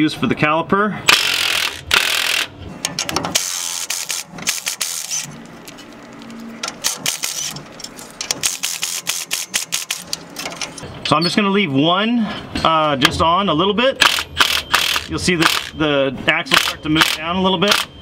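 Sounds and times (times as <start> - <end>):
impact wrench running: 1.1 - 5.4, 6.6 - 10.6, 14.0 - 15.8, 16.5 - 17.9.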